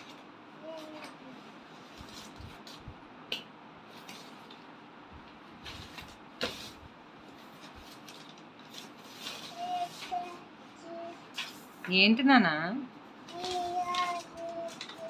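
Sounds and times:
magazine pages rustling: 0:05.6 - 0:10.4, 0:13.3 - 0:15.0
paper crackling: 0:07.4 - 0:11.8, 0:13.2 - 0:15.0.

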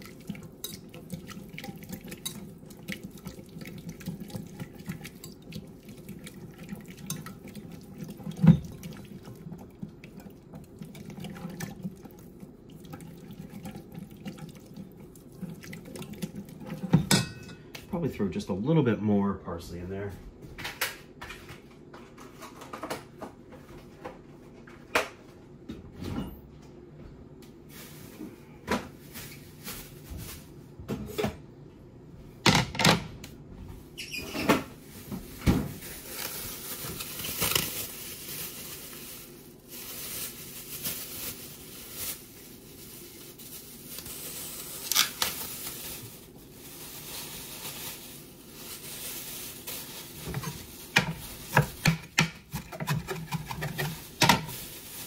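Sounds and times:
knocks and clunks of kitchenware: 0:16.8 - 0:17.8, 0:32.4 - 0:33.2, 0:50.3 - 0:54.6.

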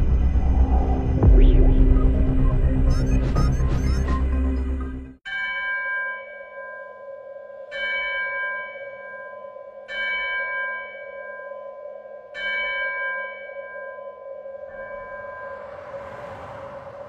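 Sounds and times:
steady low drone: 0:00.0 - 0:05.2
bell-like tones ringing: 0:05.3 - 0:16.5.

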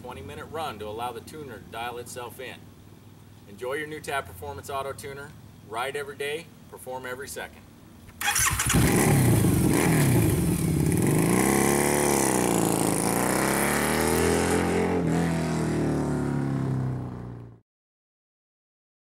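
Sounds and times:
motorcycle engine revving: 0:08.2 - 0:17.6.

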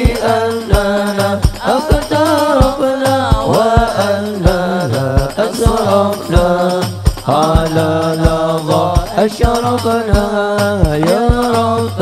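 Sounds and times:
drum beating: 0:00.0 - 0:12.0.

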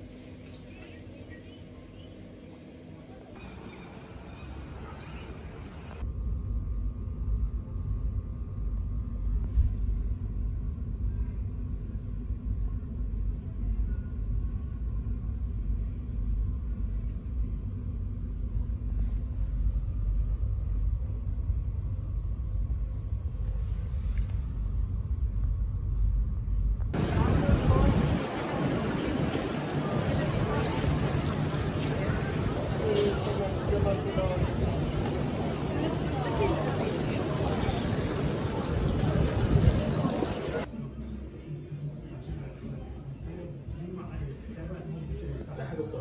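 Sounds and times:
vehicle rumbling in motion: 0:03.1 - 0:06.1, 0:18.2 - 0:40.7.

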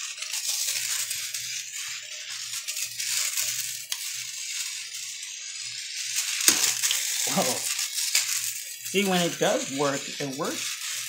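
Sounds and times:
small electric motor whirring: 0:00.0 - 0:11.0.

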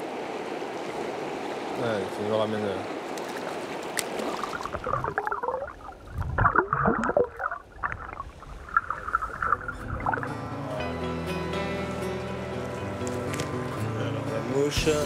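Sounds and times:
water gurgling and splashing: 0:02.8 - 0:10.4.

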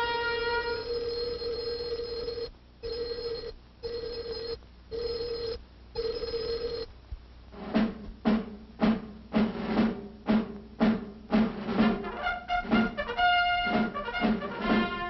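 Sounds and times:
telephone ringing: 0:00.0 - 0:06.9.

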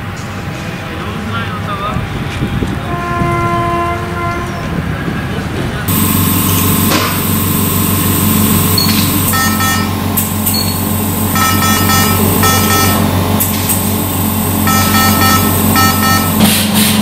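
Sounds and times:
low machine hum: 0:00.0 - 0:17.0
electronic alarm beeps: 0:05.9 - 0:13.1, 0:14.6 - 0:16.5.

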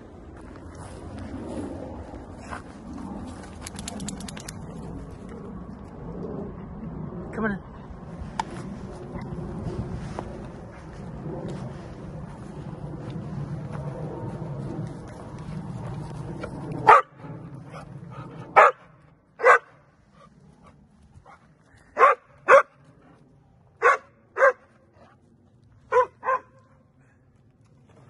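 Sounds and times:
low rumble: 0:00.0 - 0:28.0
dog barking: 0:16.9 - 0:17.1, 0:18.6 - 0:18.8, 0:19.4 - 0:19.7, 0:22.0 - 0:22.8, 0:23.8 - 0:24.7, 0:25.9 - 0:26.6.

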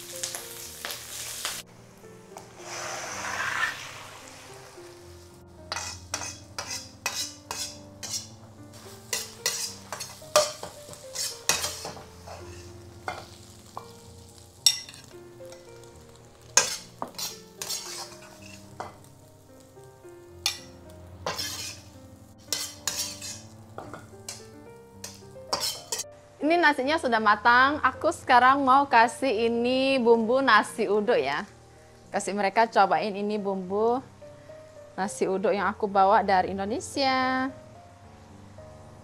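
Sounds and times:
food sizzling in oil: 0:00.0 - 0:26.1
metal utensil scraping a wok: 0:02.4 - 0:19.1, 0:20.4 - 0:26.0.

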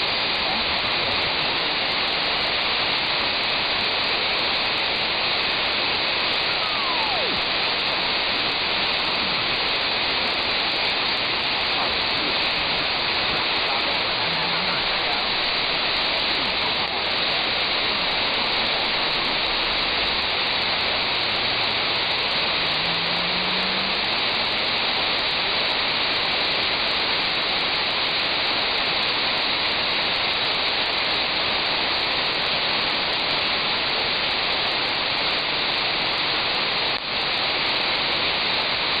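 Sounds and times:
radio receiver static hiss: 0:00.0 - 0:39.0
faint low rising tone: 0:06.3 - 0:24.6.

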